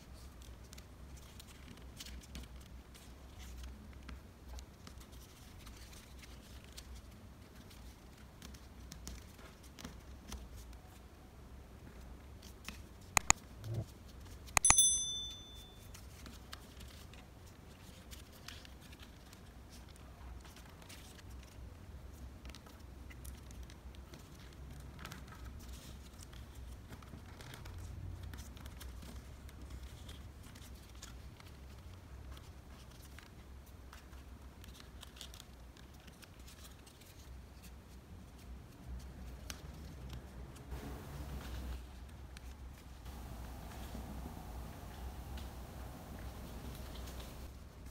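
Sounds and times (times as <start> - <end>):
paper folding and rustling: 0.2 - 11.0, 16.1 - 21.6, 22.4 - 40.3
button click: 13.2 - 13.8, 14.6 - 15.6
short bright chime: 14.6 - 15.9.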